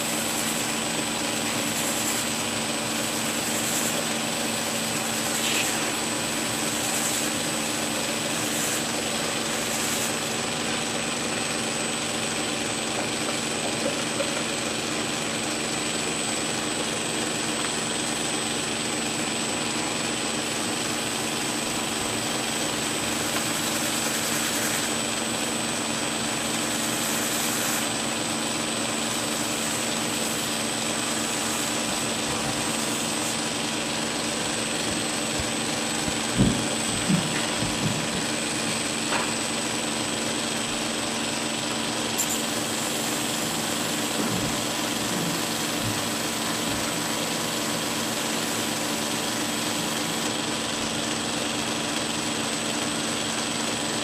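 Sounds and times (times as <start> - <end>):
belt grinder grinding steel: 0.0 - 10.8, 20.5 - 36.1.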